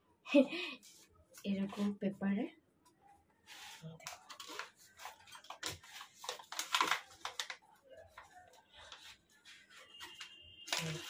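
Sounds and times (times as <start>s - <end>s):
paper crinkling and rustling: 3.5s - 11.0s.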